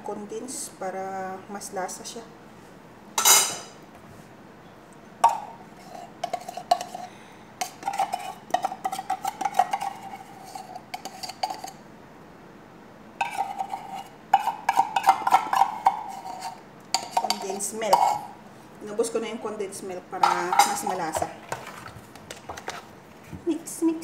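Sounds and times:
metal spoon scraping a tin can: 0:05.8 - 0:11.8, 0:13.2 - 0:18.3.

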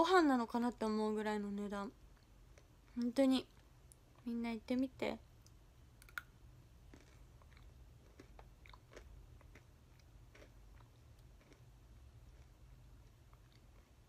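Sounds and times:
person biting and chewing crunchy snack: 0:06.9 - 0:12.6.

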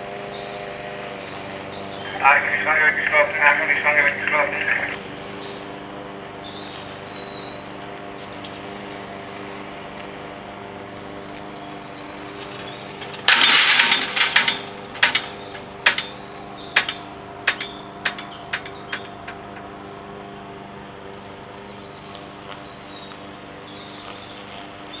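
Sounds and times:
birds chirping: 0:00.0 - 0:25.0
steady hum: 0:01.9 - 0:06.0, 0:11.0 - 0:21.7
barrier grilles rattling: 0:12.4 - 0:19.8.

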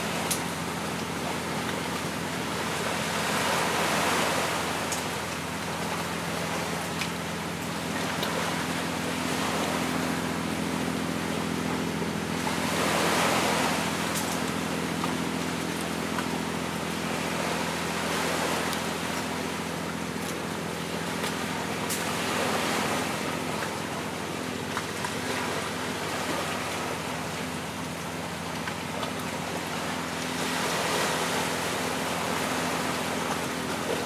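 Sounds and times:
steady low hum: 0:00.0 - 0:34.0
waves washing onto rocky shore: 0:02.1 - 0:06.8, 0:12.4 - 0:20.1.

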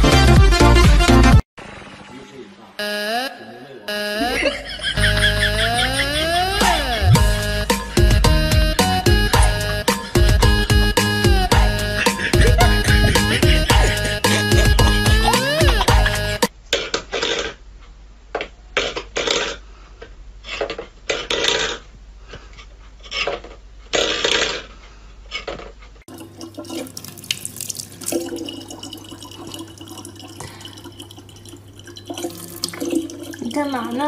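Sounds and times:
tap water filling plastic bottle: 0:26.1 - 0:33.7.

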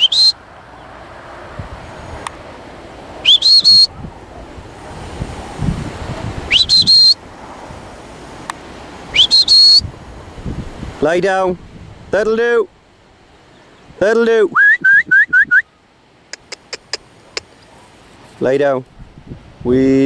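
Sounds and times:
high sliding whistles: 0:00.0 - 0:00.4, 0:03.2 - 0:04.0, 0:06.5 - 0:07.2, 0:09.1 - 0:09.9, 0:14.5 - 0:15.7.

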